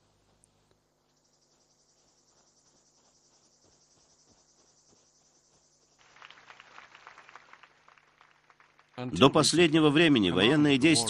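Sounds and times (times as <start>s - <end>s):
insects trilling: 0.9s - 6.4s.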